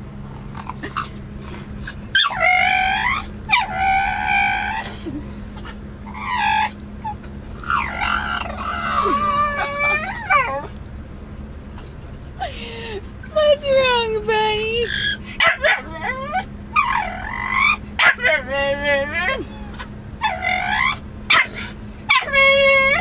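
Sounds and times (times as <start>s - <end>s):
steady low car hum: 0.0s - 23.0s
dog howling and whining: 0.6s - 5.2s, 6.0s - 10.8s, 14.8s - 23.0s.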